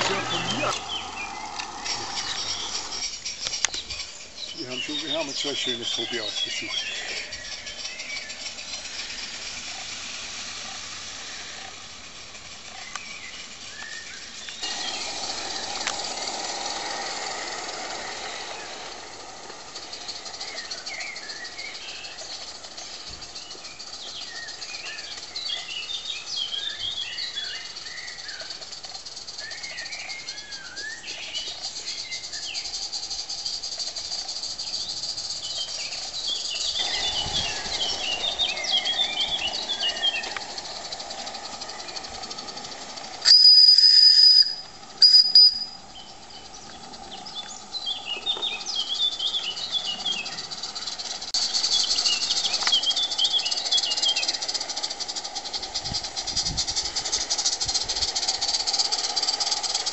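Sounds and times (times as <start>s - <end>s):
songbirds chirping: 0.0s - 43.2s, 44.3s - 59.9s
steam locomotive hissing: 0.0s - 59.9s
steam whistle blast: 43.2s - 45.8s.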